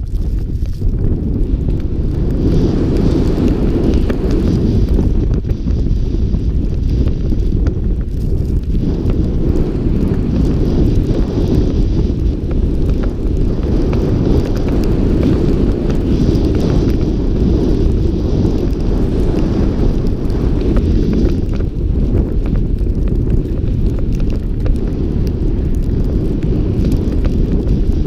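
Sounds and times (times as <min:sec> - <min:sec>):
snowboard sliding over snow: 0:00.0 - 0:28.0
wind buffeting microphone: 0:00.0 - 0:28.0.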